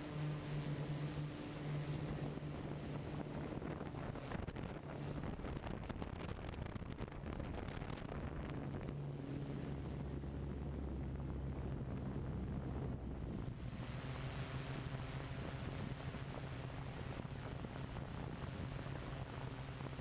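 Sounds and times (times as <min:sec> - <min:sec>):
drone propellers humming: 0:00.0 - 0:20.0
wind on microphone: 0:02.0 - 0:13.9.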